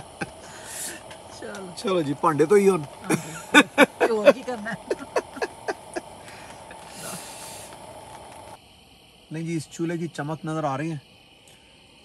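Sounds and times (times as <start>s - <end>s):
soft hiss: 0.0s - 12.0s
person vocalizing in bursts: 3.0s - 6.3s.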